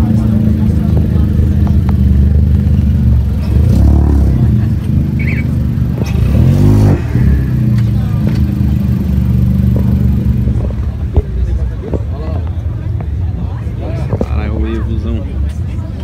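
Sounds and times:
engine rumbling and revving: 0:00.0 - 0:16.0.

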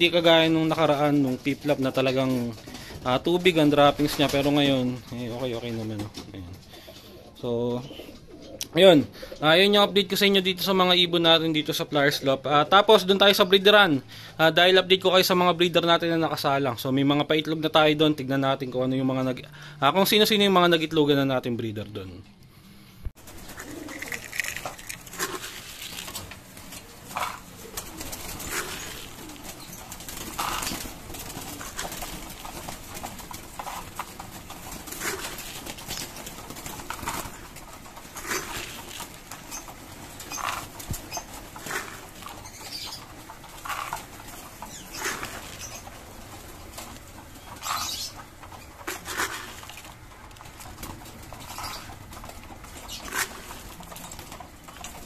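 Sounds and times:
pigeons flapping wings: 0:00.0 - 0:07.2, 0:23.2 - 0:55.0
pigeons cooing: 0:06.4 - 0:09.5, 0:23.2 - 0:55.0.

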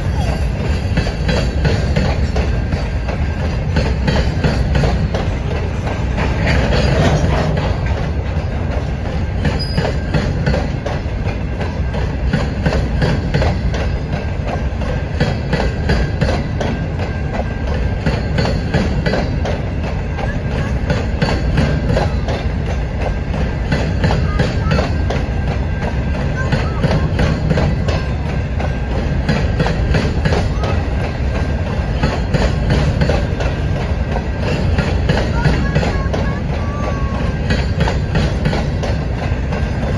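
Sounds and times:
freight train wheels rumbling: 0:00.0 - 0:39.9
wheels clicking over track: 0:00.0 - 0:39.9.

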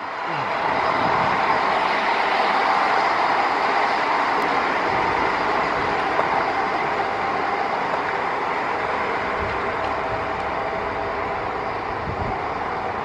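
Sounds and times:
railcar engine running: 0:00.0 - 0:13.0
train wheels on rails: 0:00.0 - 0:13.0.

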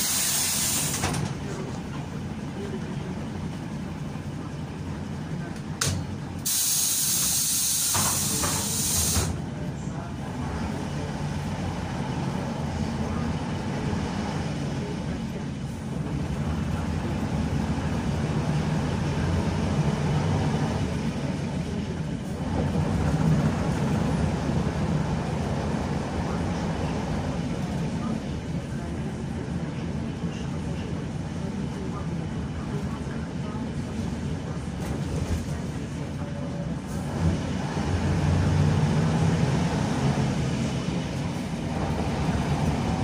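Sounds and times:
compressed air hiss: 0:00.0 - 0:01.0, 0:06.4 - 0:09.3
bus engine drone: 0:00.0 - 0:43.0.

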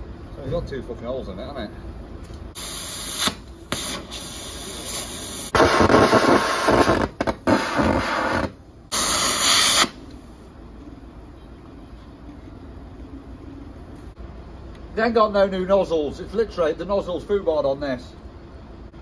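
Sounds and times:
hissing of escaping gas: 0:02.6 - 0:10.0.

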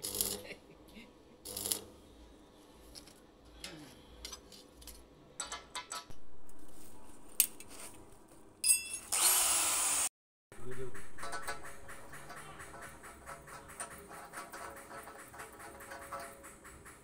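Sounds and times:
welding arc crackle: 0:00.0 - 0:00.6, 0:01.4 - 0:01.9
metal pipe clinks and knocks: 0:04.3 - 0:06.2, 0:08.6 - 0:09.1.

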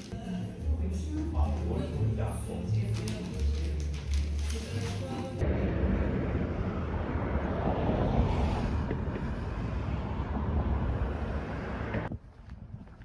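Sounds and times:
wind buffeting microphone: 0:05.4 - 0:13.0.

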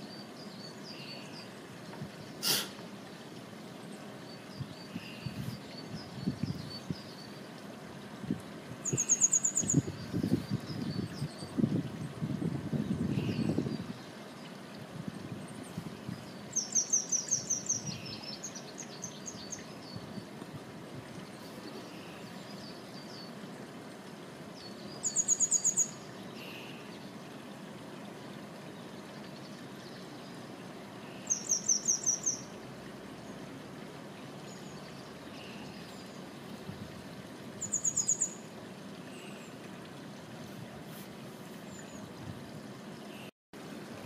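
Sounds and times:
low rushing hiss: 0:00.0 - 0:05.7
small songbird calling: 0:00.0 - 0:08.2, 0:08.8 - 0:12.2, 0:12.8 - 0:14.6, 0:15.2 - 0:20.4, 0:24.6 - 0:27.6, 0:28.7 - 0:32.6, 0:37.5 - 0:39.7.

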